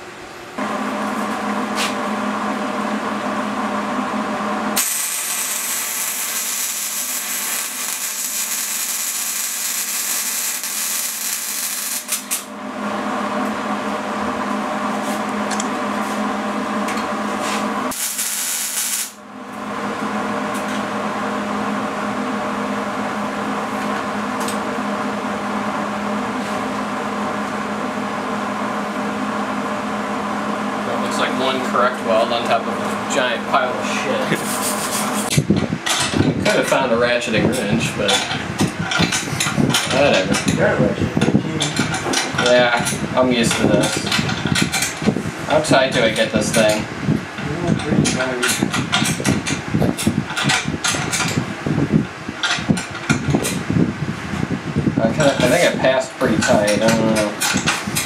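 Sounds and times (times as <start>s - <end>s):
steady hum: 0.0s - 58.0s
arc welding crackling hiss: 4.8s - 12.5s, 17.9s - 19.2s, 34.2s - 35.4s.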